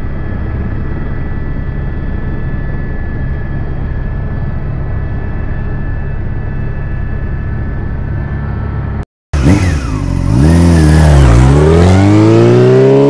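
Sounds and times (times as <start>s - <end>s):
steady engine drone: 0.0s - 13.0s
engine revving and accelerating: 9.4s - 13.0s.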